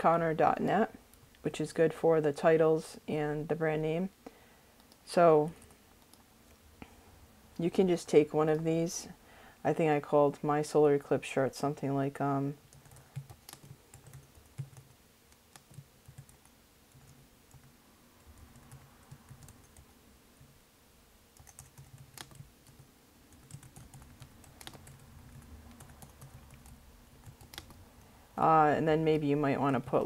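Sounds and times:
typing on computer keyboard: 12.7 - 19.8, 21.4 - 27.8.

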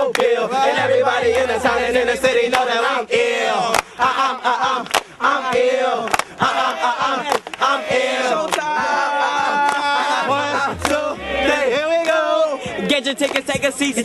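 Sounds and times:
voices chanting: 0.0 - 14.0
hip-hop backing track: 0.1 - 4.8, 6.3 - 14.0
deep bass note: 0.8 - 2.4, 10.3 - 11.9.

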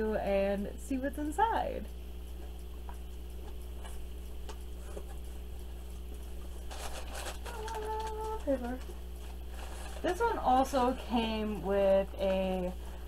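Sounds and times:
low steady hum: 0.0 - 13.0
packing paper rustling: 6.4 - 10.6.

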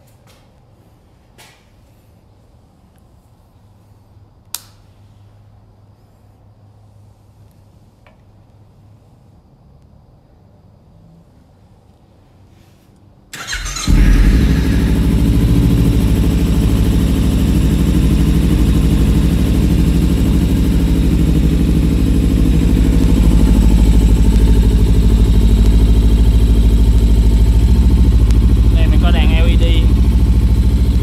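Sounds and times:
motorcycle starter cranking: 13.4 - 17.0
motorcycle engine idling: 13.4 - 31.0.

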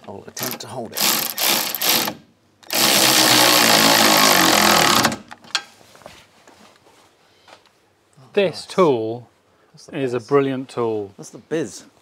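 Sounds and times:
power tool running nuts down: 1.0 - 5.3.

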